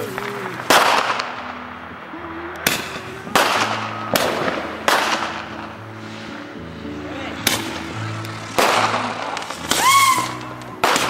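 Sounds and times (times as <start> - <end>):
firework pops: 0.0 - 1.6, 2.6 - 5.7, 7.4 - 11.0.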